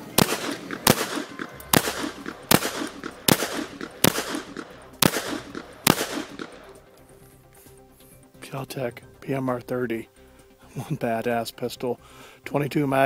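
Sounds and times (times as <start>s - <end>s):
pistol shots with echo: 0.0s - 6.8s.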